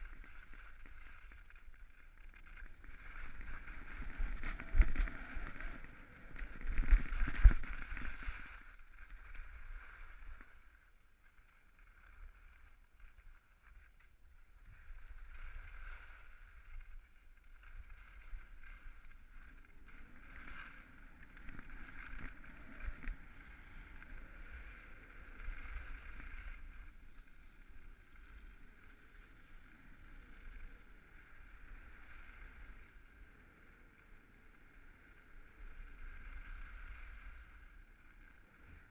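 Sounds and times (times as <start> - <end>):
skis scraping over snow: 0.0 - 38.9
wind on microphone: 3.2 - 8.7.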